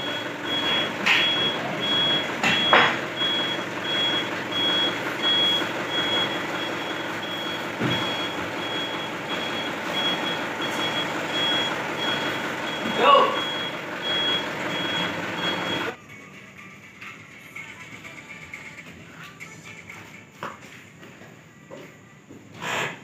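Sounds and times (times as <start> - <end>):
truck reversing alarm beeping: 0.0 - 16.2.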